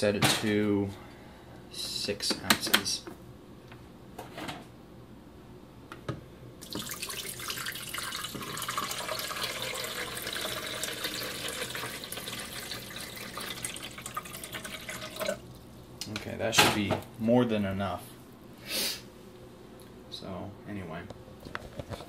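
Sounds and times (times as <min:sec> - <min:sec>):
water pouring into reservoir: 0:06.6 - 0:15.6.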